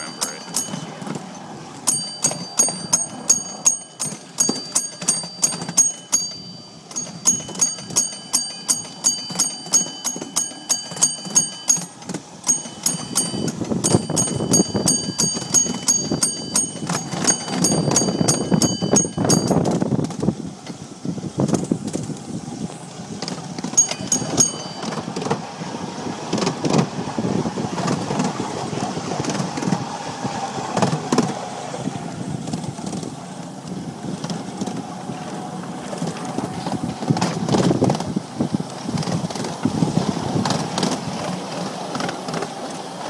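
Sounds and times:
high-pitched trolley bell: 0.0 - 19.8, 23.7 - 25.1
ride running rumble: 0.0 - 43.0.

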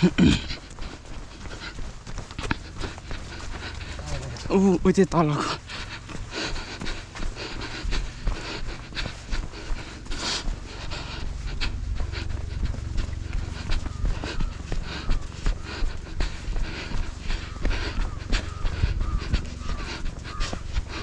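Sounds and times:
heavy panting breaths: 0.0 - 21.0
wind rumble on microphone: 16.2 - 21.0.

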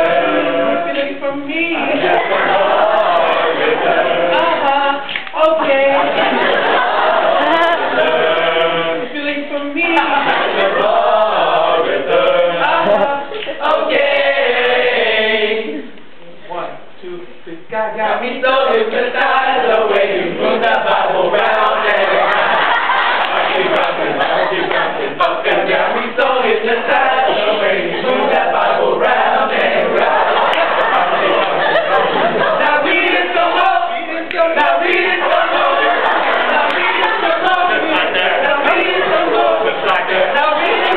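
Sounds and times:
men singing in harmony: 0.0 - 15.8, 17.8 - 40.9.

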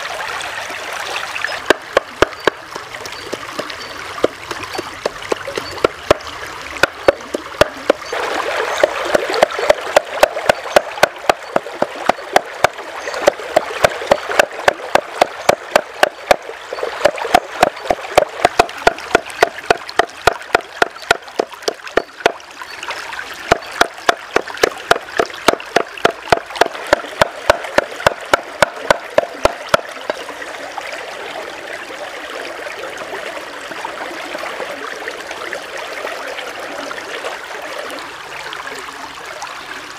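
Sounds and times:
stream trickling: 0.0 - 39.9
cleaver chopping meat on board: 23.8 - 29.8.

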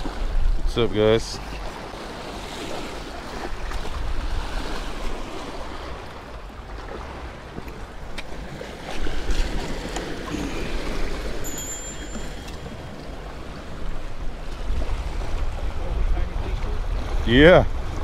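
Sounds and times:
waves washing against rocks: 0.0 - 18.0
wind rumbling on microphone: 0.0 - 18.0
short high chime: 11.4 - 13.3.

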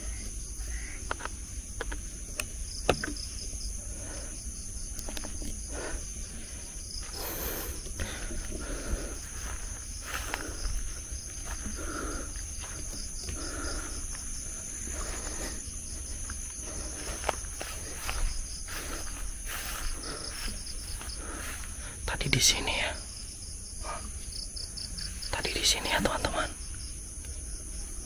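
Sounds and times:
rustles: 0.0 - 23.4
crickets trilling: 0.0 - 28.0
footsteps: 5.1 - 21.9.

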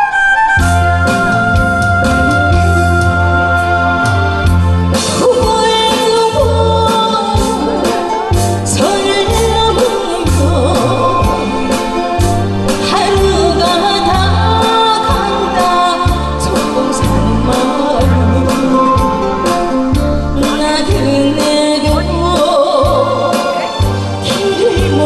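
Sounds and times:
person singing with vibrato: 0.9 - 25.0
steady bass beat: 8.4 - 24.2.

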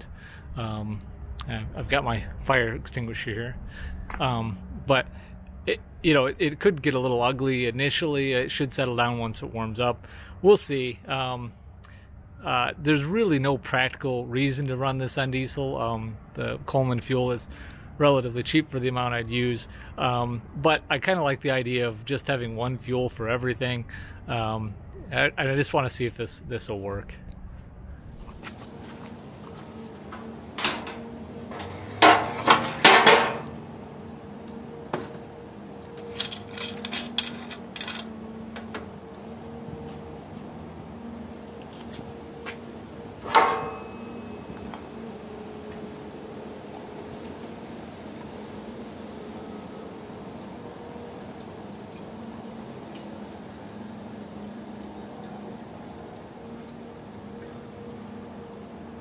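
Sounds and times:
steady low hum: 0.0 - 59.0
metal clanks and knocks: 30.0 - 33.6, 36.0 - 38.9, 43.2 - 44.9
light clicks and scrapes: 36.0 - 38.1
fuel trickling through funnel: 46.3 - 59.0.

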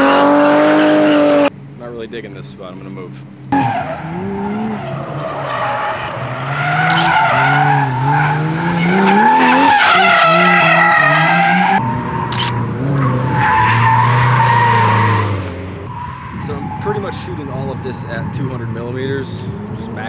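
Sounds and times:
car engine revving: 0.0 - 1.5, 3.4 - 20.0
short sharp clicks: 6.9 - 7.2.

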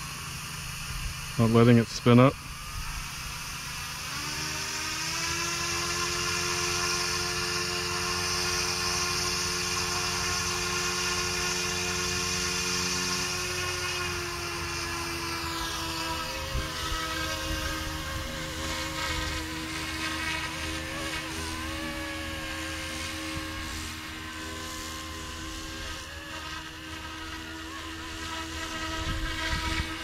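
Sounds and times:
rc helicopter motor whine: 0.0 - 30.0
wind rumble on microphone: 28.6 - 30.0.

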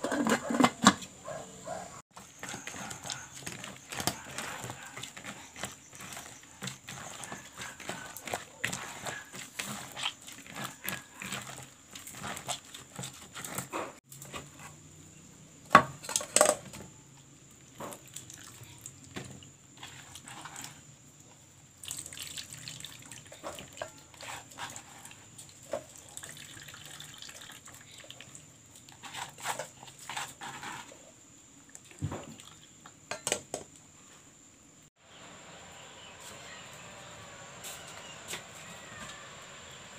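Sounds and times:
wet squelching and splashing: 21.8 - 23.8
liquid pouring into pot: 21.8 - 23.9, 25.6 - 28.3.

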